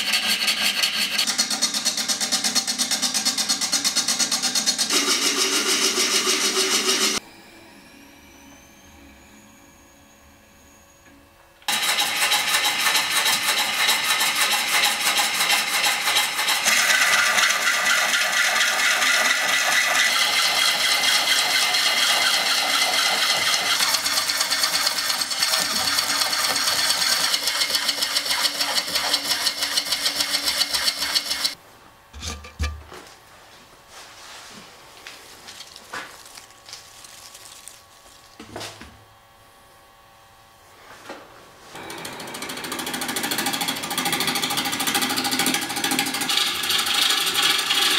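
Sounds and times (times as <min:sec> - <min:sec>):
lathe gouge cutting wood: 0:00.0 - 0:07.2, 0:11.7 - 0:31.6, 0:41.8 - 0:47.9.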